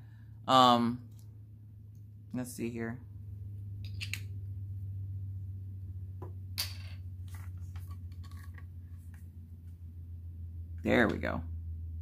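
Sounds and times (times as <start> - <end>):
low steady hum: 0.0 - 12.0
plastic clicks and rustles: 7.2 - 9.2.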